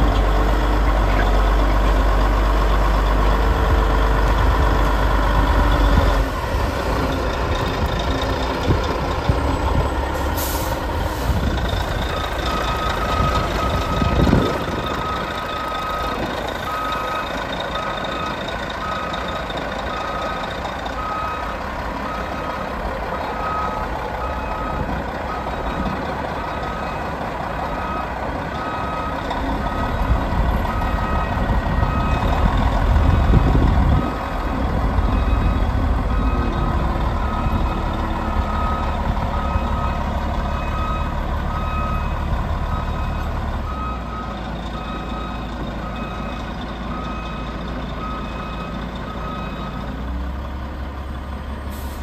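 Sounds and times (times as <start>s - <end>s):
diesel engine running: 0.0s - 52.0s
reversing alarm beeps: 12.1s - 22.6s, 23.3s - 27.1s, 27.7s - 32.5s, 35.0s - 49.8s.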